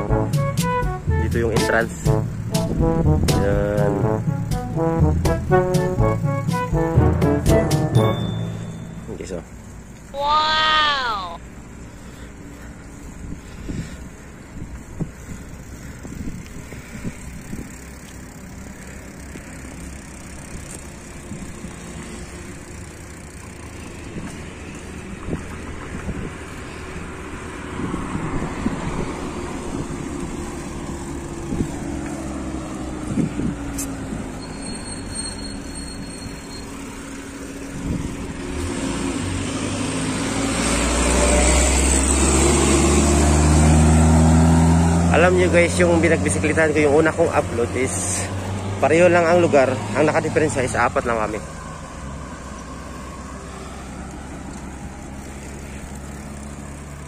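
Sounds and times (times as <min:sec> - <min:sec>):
road traffic: 0:00.0 - 0:57.0
vehicle rumble: 0:00.0 - 0:57.0
wind on microphone: 0:33.0 - 0:33.8.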